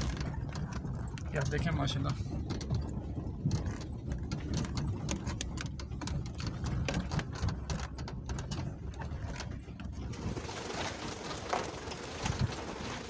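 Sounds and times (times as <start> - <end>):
body and fittings rattling: 0.0 - 13.0
vehicle cabin rumble: 0.0 - 13.0.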